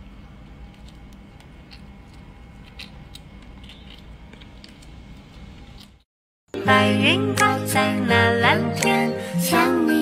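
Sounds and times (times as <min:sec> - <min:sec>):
squirrel gnawing walnuts: 0:00.6 - 0:06.0.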